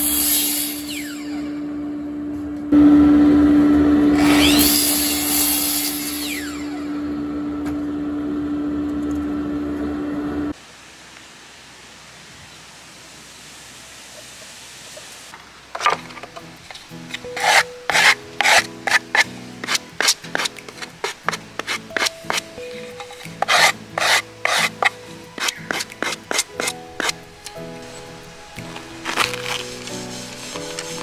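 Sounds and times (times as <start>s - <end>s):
soft background music: 16.1s - 31.0s
sandpaper rasping on wood: 17.2s - 22.6s, 23.3s - 27.2s, 29.1s - 31.0s.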